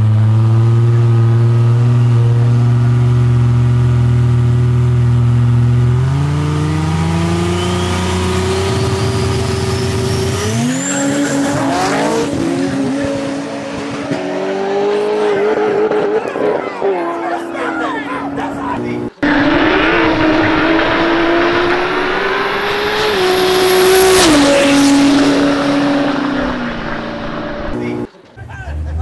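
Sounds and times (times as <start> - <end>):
car engines revving: 0.0 - 29.0
high whine: 18.8 - 28.1.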